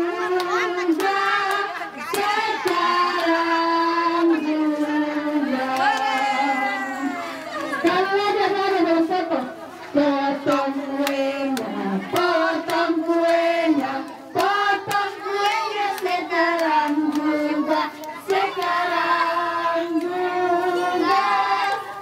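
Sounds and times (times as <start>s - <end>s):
group singing a birthday song: 0.0s - 22.0s
hand claps: 0.4s - 3.4s, 10.5s - 18.8s.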